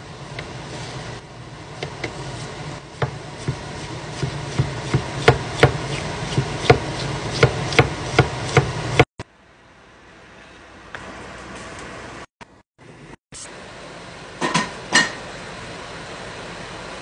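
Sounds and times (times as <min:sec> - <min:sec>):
steady low hum: 0:00.0 - 0:17.0
knife chopping on wooden board: 0:03.0 - 0:09.1.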